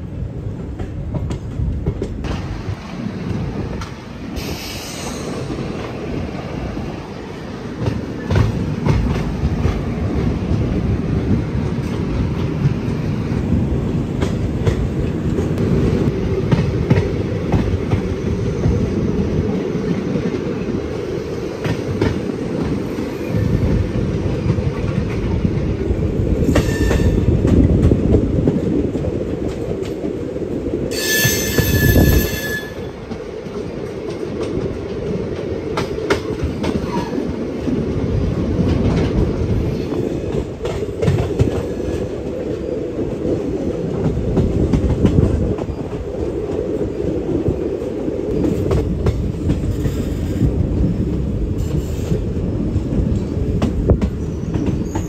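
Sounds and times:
train running rumble: 0.0 - 55.0
train wheels clattering on rails: 0.0 - 55.0
train horn: 30.9 - 33.0.

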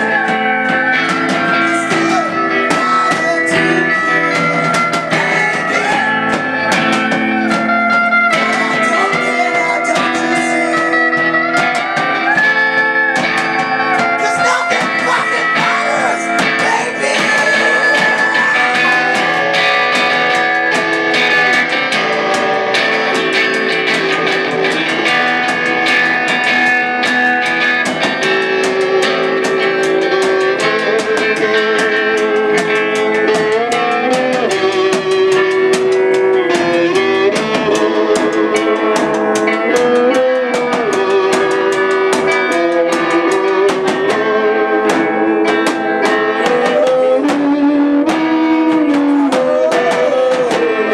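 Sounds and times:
drum kit: 0.0 - 50.9
electric guitar: 0.0 - 50.9.

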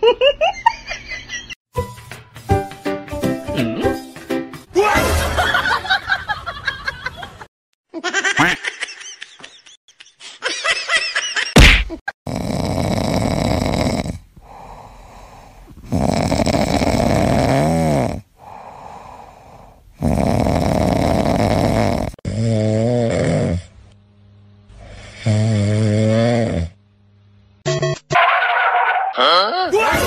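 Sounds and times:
person giggling: 8.0 - 12.0
sharp thump: 11.6 - 12.0
cat snoring: 12.3 - 23.8, 24.7 - 26.8
dog snoring: 12.3 - 23.8, 24.7 - 26.8.

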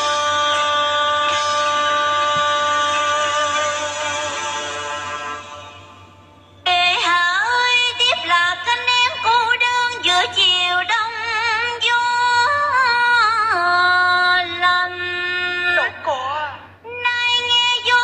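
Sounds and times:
woman singing opera: 0.0 - 5.6, 6.7 - 18.0.

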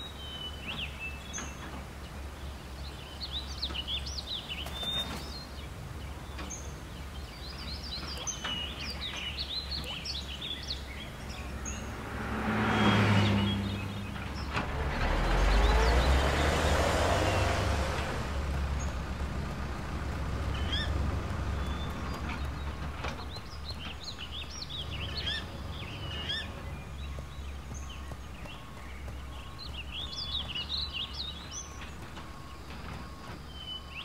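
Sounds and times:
low traffic hum: 0.0 - 34.0
small birds chirping: 0.0 - 34.0
vehicle driving past: 10.8 - 34.0.

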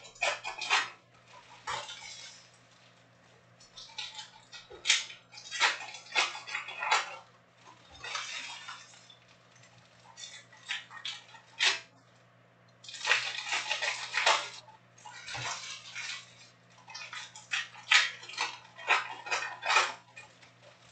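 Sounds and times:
plastic wrappers tearing and crinkling: 12.8 - 14.6.

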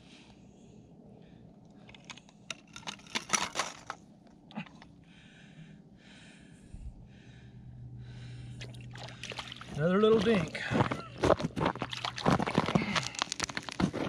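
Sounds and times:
wooden clatter on ice: 1.9 - 4.0, 10.2 - 14.0.

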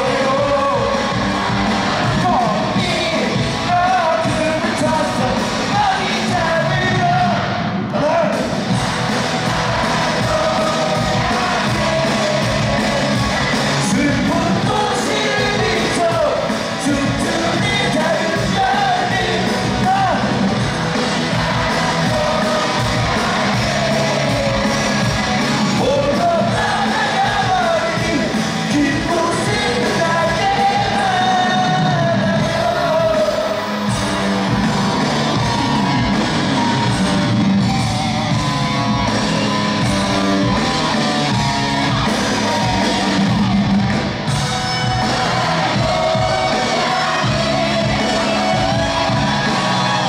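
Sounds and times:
man singing into microphone: 0.0 - 1.1, 2.2 - 7.4, 13.8 - 20.4, 25.8 - 33.6
live pop-rock band: 0.0 - 50.0
person singing: 21.0 - 33.7, 44.8 - 50.0.

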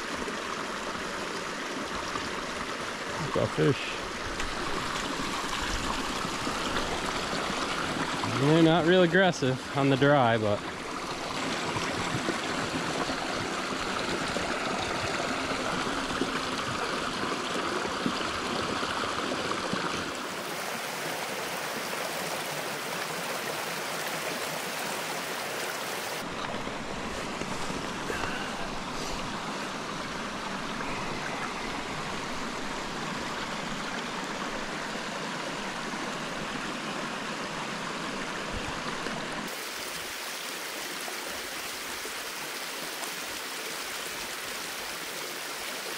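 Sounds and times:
stream water rushing: 0.0 - 45.9.

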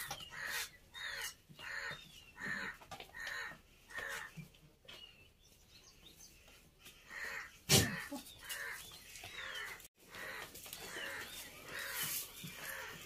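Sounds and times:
crows cawing: 0.2 - 4.3, 7.1 - 7.6, 8.4 - 13.0.

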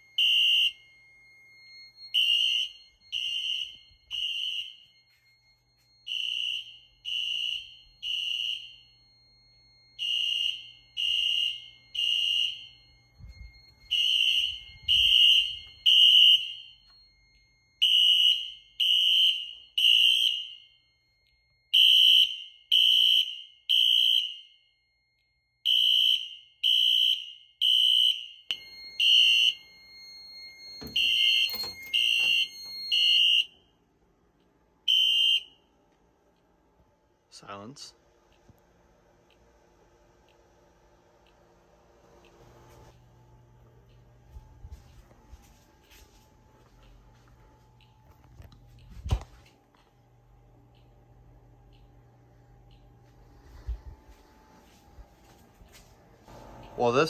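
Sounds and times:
high-pitched alarm horn beeps: 0.0 - 24.8, 25.5 - 33.7, 34.4 - 35.9.

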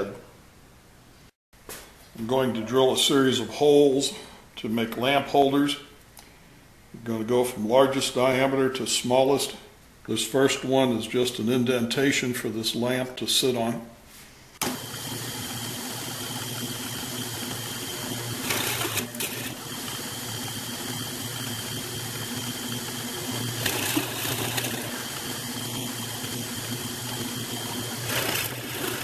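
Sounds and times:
drill press boring into wood: 14.6 - 29.0.

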